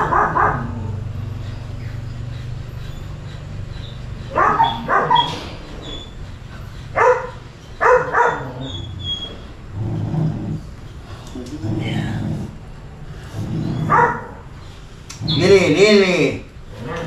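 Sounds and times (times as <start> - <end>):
dog barking: 0.0 - 1.0, 4.2 - 5.4, 6.9 - 8.8, 13.8 - 14.4.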